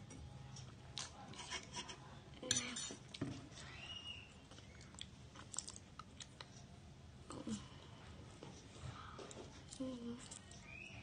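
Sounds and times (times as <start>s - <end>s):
wet chewing sounds: 4.4s - 6.7s.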